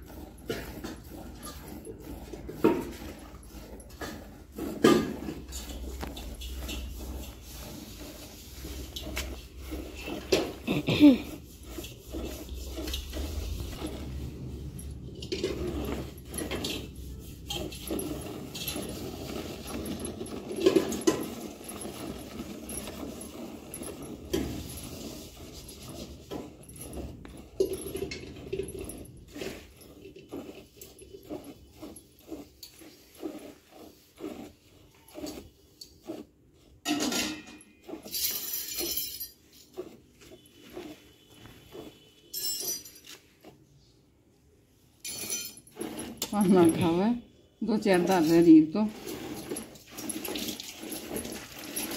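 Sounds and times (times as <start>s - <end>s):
glass bangles jingling: 38.0s - 39.7s, 41.9s - 43.2s, 45.0s - 46.9s
milk squirting into steel bucket: 48.0s - 51.9s.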